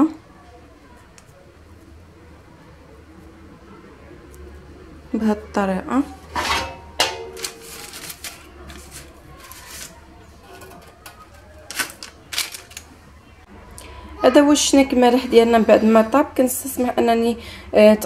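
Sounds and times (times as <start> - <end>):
paper rustling: 7.2 - 10.1, 10.8 - 13.0.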